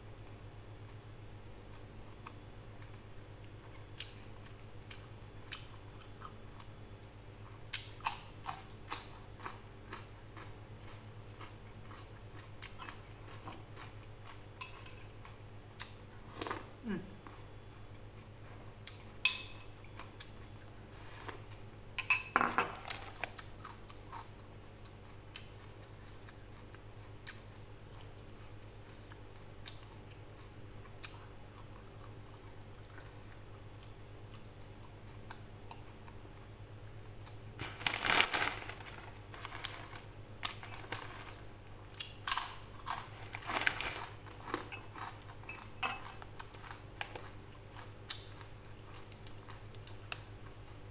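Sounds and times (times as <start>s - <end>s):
low steady hum: 0.0s - 50.9s
food being chewed: 1.6s - 6.8s, 7.4s - 21.7s, 22.9s - 36.5s, 38.8s - 50.9s
crisp crackling: 37.6s - 41.6s, 42.3s - 44.7s.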